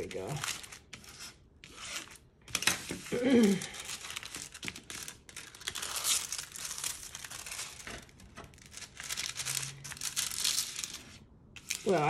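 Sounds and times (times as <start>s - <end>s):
plastic film crinkling: 2.5s - 12.0s.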